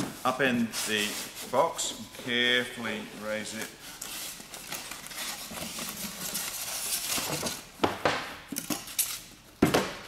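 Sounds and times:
cardboard and foam rustling: 0.0s - 7.7s.

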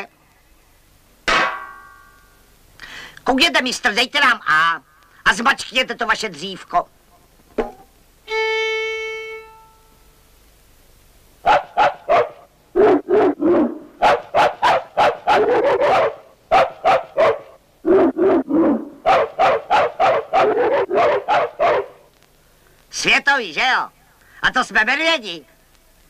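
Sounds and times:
violin bowed note: 8.3s - 10.0s
cartoon dog barks and yelps: 11.4s - 22.0s.

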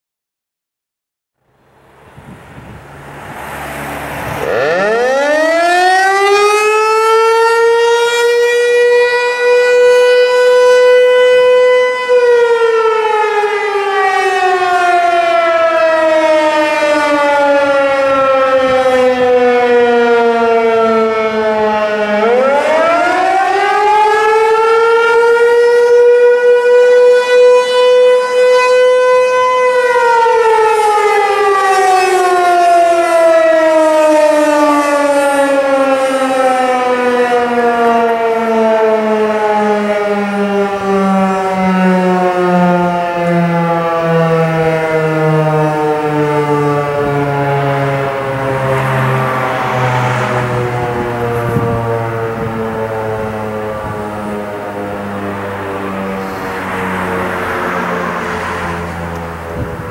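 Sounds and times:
tornado siren winding: 4.4s - 14.7s.

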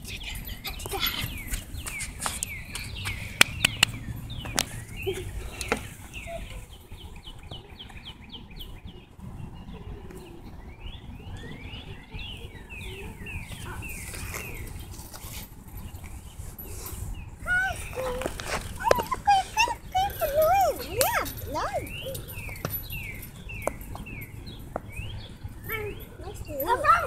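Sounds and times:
birds chirping and calling: 0.0s - 27.0s
sharp clicks: 1.9s - 4.7s.

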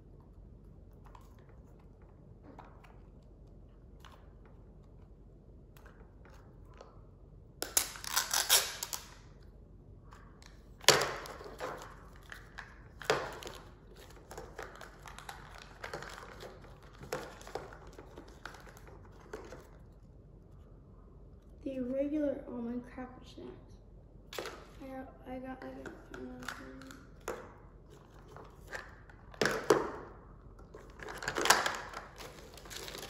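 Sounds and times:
plastic wrapping crinkling: 7.7s - 9.2s, 30.8s - 33.0s.

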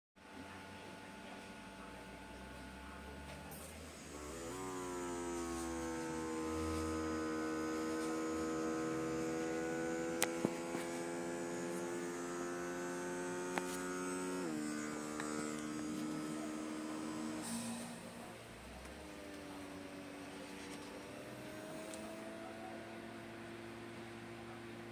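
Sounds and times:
small air pump humming: 0.3s - 24.9s.

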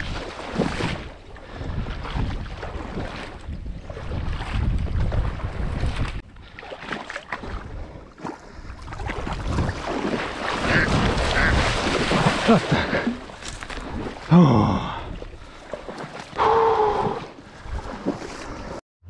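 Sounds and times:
wind buffeting microphone: 0.0s - 6.2s
water splashing: 0.0s - 18.8s.

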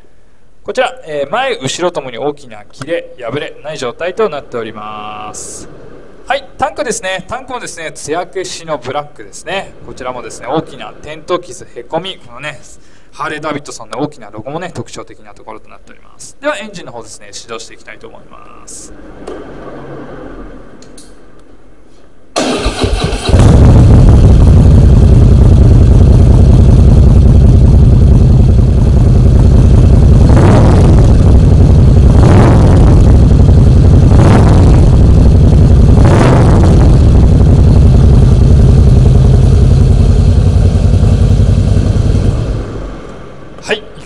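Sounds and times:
starter motor cranking: 22.4s - 25.0s
engine throttle blips: 22.4s - 44.0s
motorcycle engine idling loudly: 23.2s - 43.0s.

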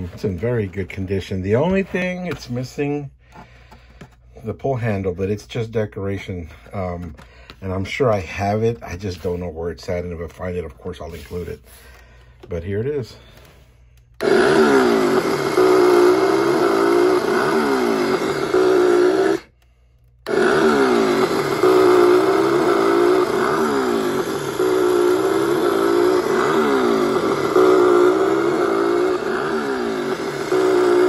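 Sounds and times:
electronic chainsaw sound effect: 14.2s - 19.5s, 20.3s - 31.0s.

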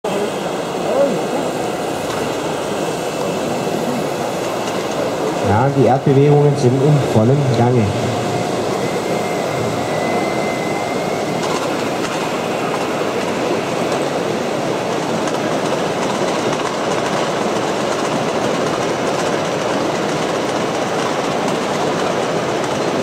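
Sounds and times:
faint whine: 0.1s - 14.9s.

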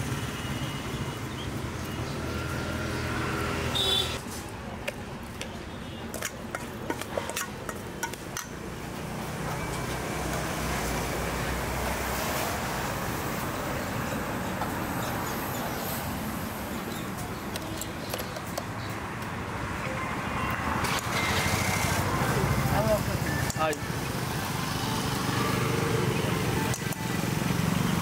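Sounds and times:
street traffic noise: 0.0s - 28.0s.

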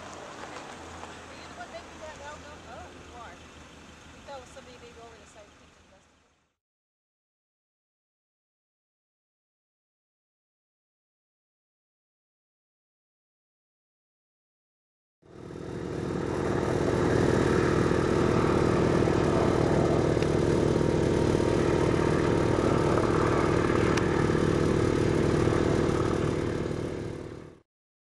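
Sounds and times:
helicopter flying by: 0.0s - 6.4s, 15.2s - 27.6s.

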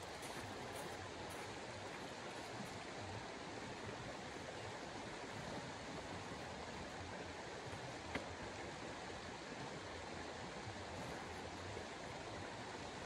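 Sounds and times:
steady outdoor rushing hiss: 0.0s - 13.0s.

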